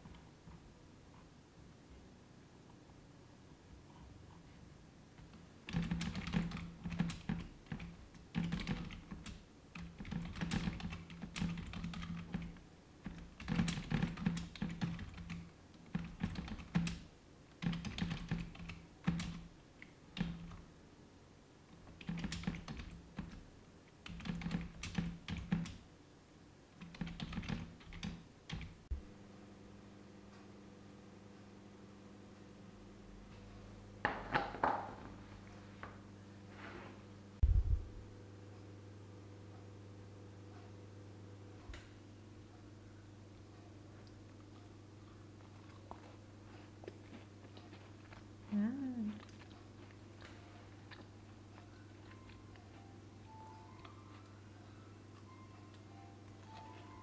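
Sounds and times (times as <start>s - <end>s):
typing on a keyboard: 5.6s - 19.5s, 20.1s - 20.6s, 21.9s - 23.4s, 24.0s - 25.8s, 26.8s - 28.8s.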